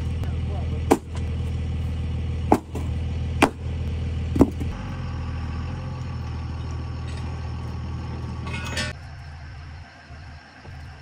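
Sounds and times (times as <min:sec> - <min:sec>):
tow truck engine idling: 0:00.0 - 0:11.0
sharp metallic knocks: 0:02.5 - 0:03.6.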